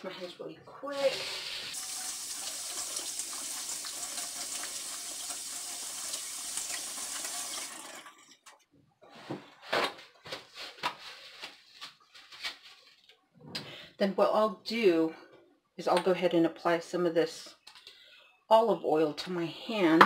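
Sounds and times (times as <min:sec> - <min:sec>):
tap water running into sink: 0:01.0 - 0:08.5.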